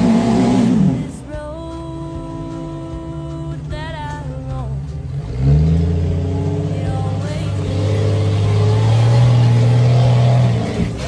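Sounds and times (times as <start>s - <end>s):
buggy engine revving hard: 0.0s - 1.3s, 4.7s - 11.0s.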